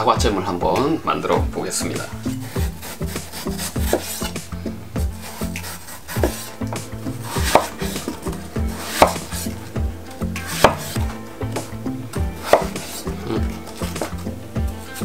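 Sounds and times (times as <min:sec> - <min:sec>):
knife slicing apple: 0:02.0 - 0:15.0
knife knocking wooden board: 0:02.4 - 0:04.4, 0:05.0 - 0:09.6, 0:10.3 - 0:14.2.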